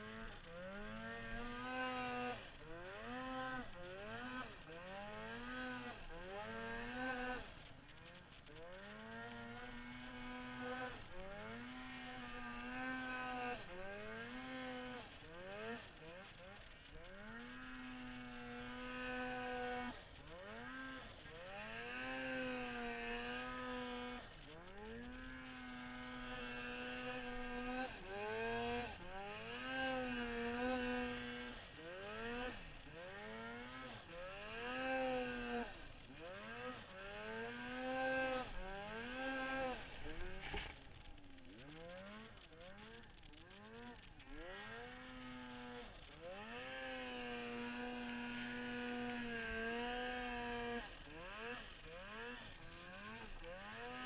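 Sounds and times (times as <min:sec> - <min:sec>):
snowmobile engine revving: 0:00.0 - 0:54.0.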